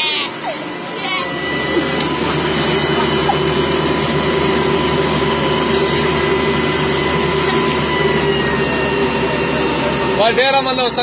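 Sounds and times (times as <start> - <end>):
excavator diesel engine running: 0.0 - 11.0
steady whine: 0.0 - 11.0.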